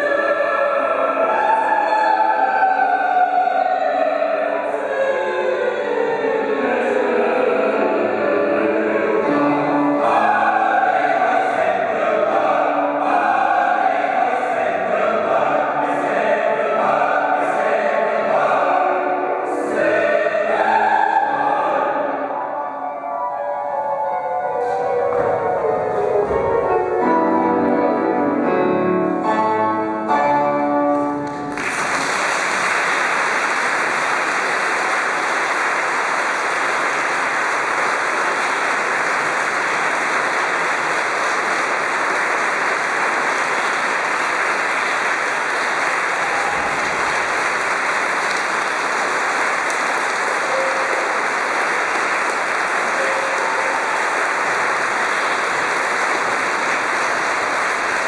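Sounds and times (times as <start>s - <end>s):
music: 0.0s - 32.1s, 38.2s - 58.0s
audience applauding: 31.2s - 58.0s.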